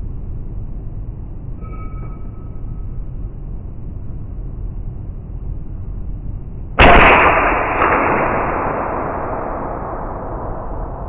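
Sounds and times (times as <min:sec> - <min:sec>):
slowed gunshot boom: 0:06.8 - 0:11.0.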